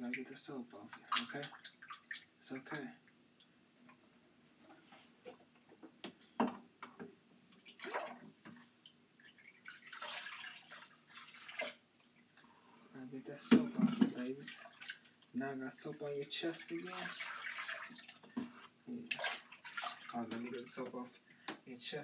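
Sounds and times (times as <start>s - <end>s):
water splashing in a plastic tub: 0.0s - 3.0s, 7.6s - 12.2s, 13.3s - 21.0s
water poured from a cup: 9.3s - 11.8s.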